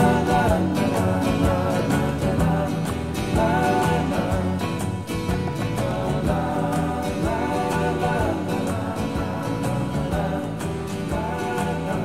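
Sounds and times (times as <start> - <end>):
song with singing over drum beat: 0.0 - 12.0.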